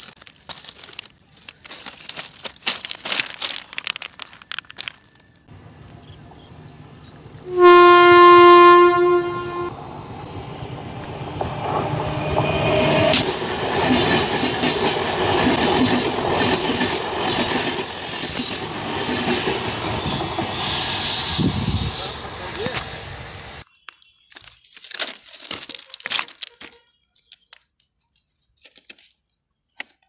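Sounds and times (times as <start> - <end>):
train horn blast: 7.4 - 9.8
train wheels clattering: 11.4 - 22.9.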